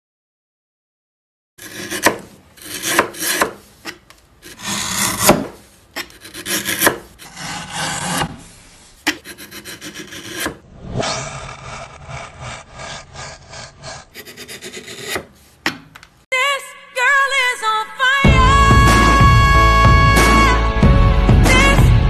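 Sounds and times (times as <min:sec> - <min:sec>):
hand plane shaving wood: 0:01.6 - 0:10.6, 0:11.4 - 0:15.6.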